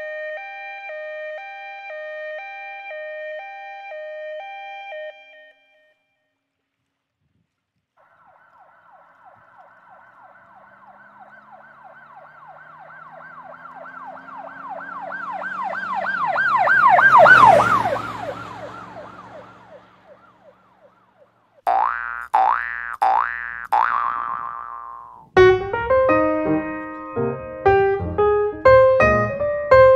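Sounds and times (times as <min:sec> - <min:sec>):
emergency siren yelping: 0:00.0 - 0:05.8, 0:08.0 - 0:21.4
low vehicle rumble: 0:08.0 - 0:21.6, 0:25.3 - 0:29.9.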